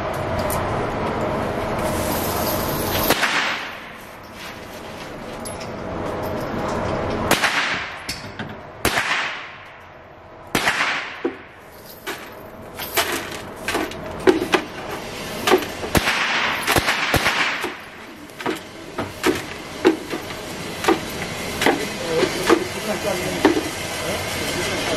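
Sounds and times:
broom sweeping concrete floor: 0:01.5 - 0:06.8, 0:11.6 - 0:24.9
brass casings clinking and rattling: 0:11.6 - 0:14.3.

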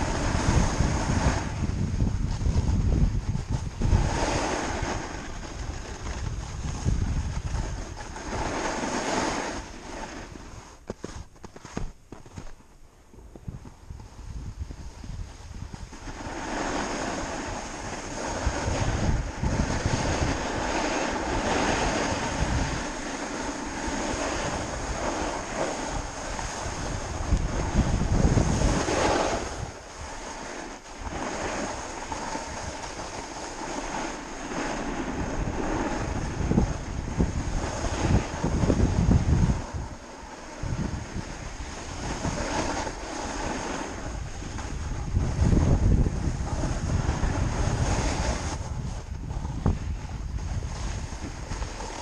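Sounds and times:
snowboard scraping on snow: 0:00.0 - 0:52.0
wind buffeting microphone: 0:00.0 - 0:52.0.

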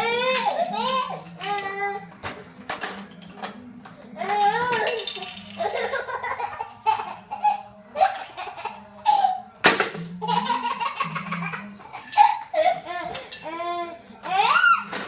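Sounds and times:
baby giggling: 0:05.6 - 0:09.4, 0:10.2 - 0:13.2.

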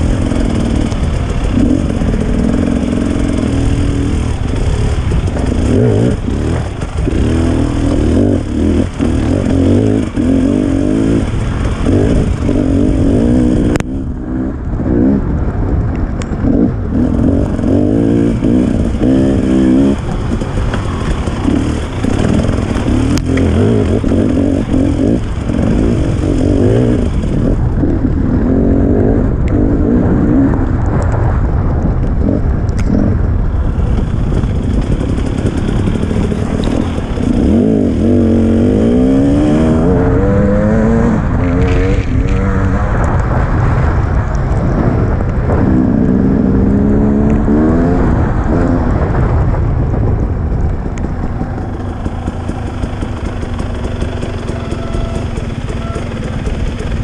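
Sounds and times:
dirt bike engine revving: 0:00.0 - 0:15.4, 0:16.4 - 0:30.6, 0:34.2 - 0:44.0, 0:51.0 - 0:57.0.

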